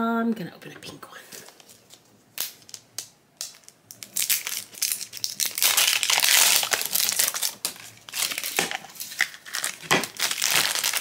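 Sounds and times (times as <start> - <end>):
plastic wrapper crinkling: 1.4 - 11.0.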